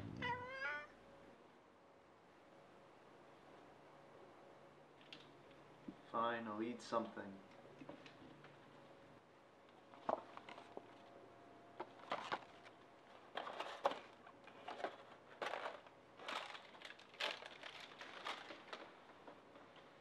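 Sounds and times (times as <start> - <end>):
paper bag rustling: 11.9 - 20.0
foam container crackling: 15.4 - 19.0.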